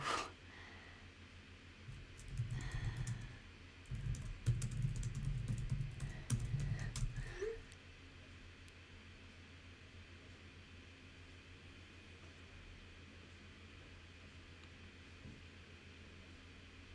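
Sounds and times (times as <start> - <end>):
typing on computer keyboard: 1.9 - 7.6.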